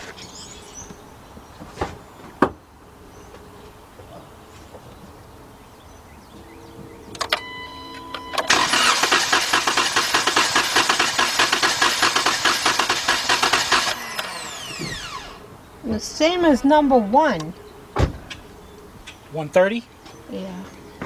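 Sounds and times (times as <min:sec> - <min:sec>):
starter motor cranking engine: 0:08.4 - 0:15.4.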